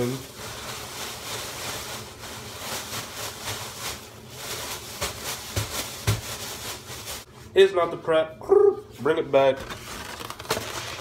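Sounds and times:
plastic bags crinkling: 0.0s - 7.3s, 9.6s - 11.0s.

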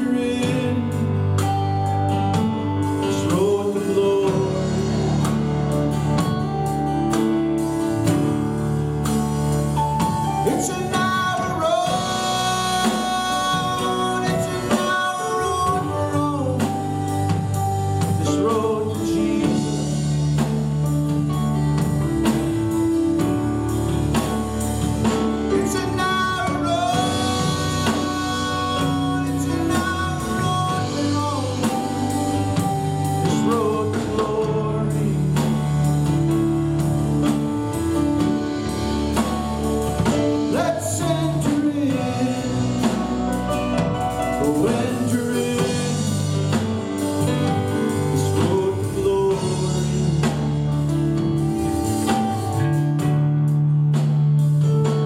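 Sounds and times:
man singing: 0.0s - 6.9s, 9.7s - 23.3s, 24.1s - 52.5s
drum kit beat: 0.0s - 55.0s.

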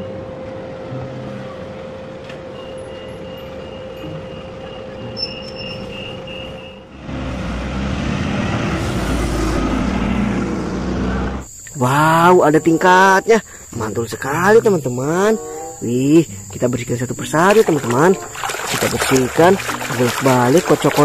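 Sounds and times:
bus driving past: 0.0s - 11.5s
tram electric hum: 0.0s - 17.4s.

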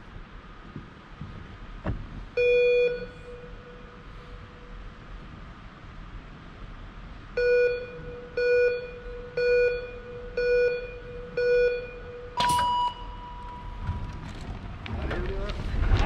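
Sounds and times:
long high-pitched start beep: 2.4s - 4.0s, 7.4s - 13.9s
short countdown beeps: 2.4s - 4.0s, 7.4s - 13.6s
start gate clack: 12.4s - 16.0s.

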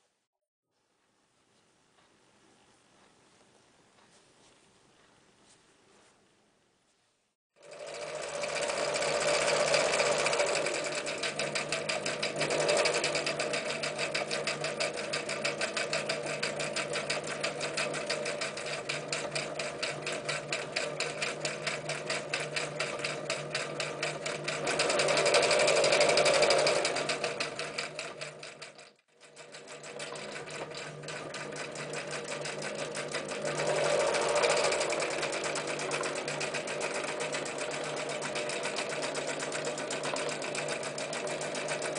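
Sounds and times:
sewing machine stitching: 7.6s - 41.9s.

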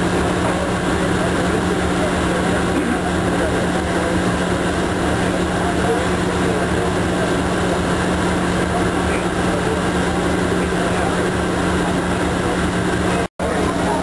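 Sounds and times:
machinery drone: 0.0s - 14.0s.

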